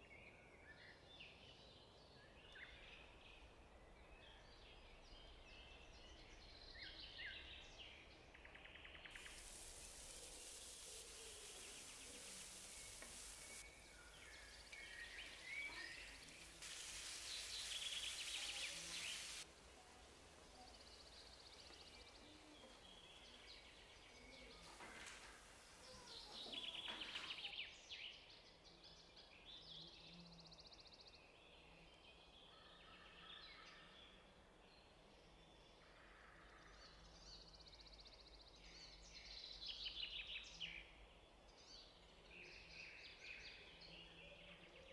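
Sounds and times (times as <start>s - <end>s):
water poured into hot pan: 9.1s - 21.5s, 24.6s - 27.3s
food sizzling in a frying pan: 9.1s - 27.4s.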